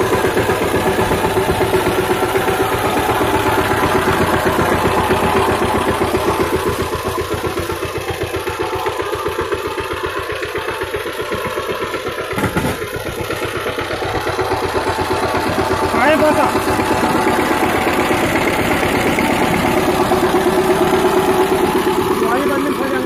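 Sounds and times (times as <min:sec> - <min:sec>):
diesel tiller engine running: 0:00.0 - 0:23.0.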